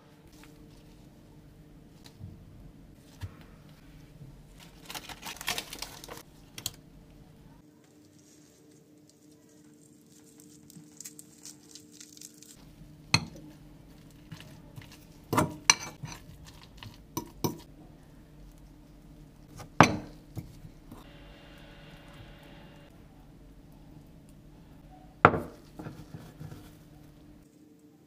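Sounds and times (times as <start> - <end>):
soft squishing of garlic: 3.0 - 28.0
fork mashing and stirring: 12.6 - 17.7, 25.4 - 27.3.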